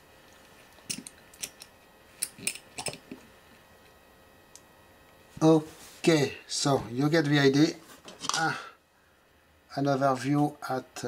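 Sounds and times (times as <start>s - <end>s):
metal parts clicking and tapping: 0.9s - 3.0s.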